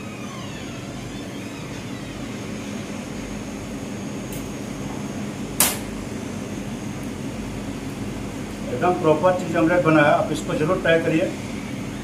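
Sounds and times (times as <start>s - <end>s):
exhaust hood fan humming: 0.0s - 12.0s
sharp click: 5.6s - 5.9s.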